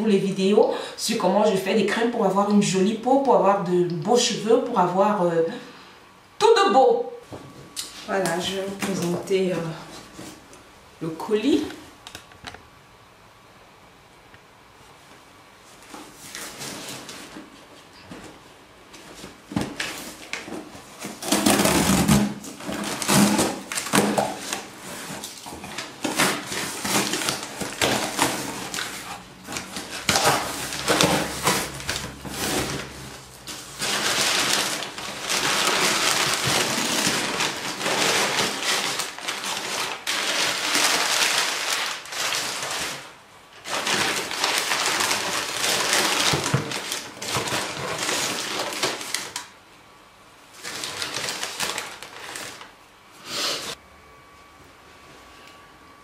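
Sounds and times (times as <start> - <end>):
packing paper crackling: 19.0 - 49.6, 50.5 - 52.8
cardboard box tearing open: 21.0 - 43.0.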